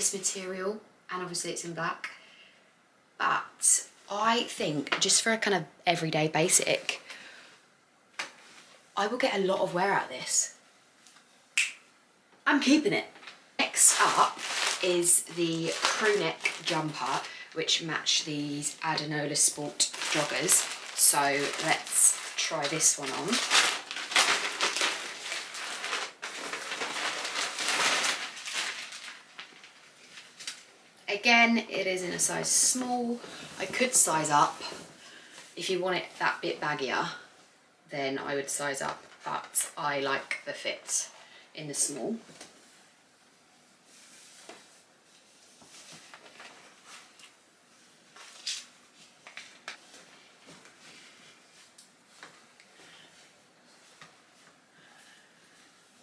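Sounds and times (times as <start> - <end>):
sweatshirt fabric rustling: 12.7 - 30.7, 31.9 - 35.7, 41.8 - 56.0
plastic bag crinkling: 13.1 - 30.7.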